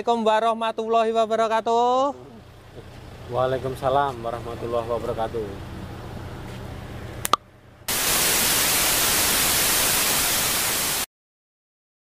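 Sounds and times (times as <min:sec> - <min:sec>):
faint outdoor ambience: 0:00.0 - 0:11.1
hissing static: 0:07.9 - 0:11.1.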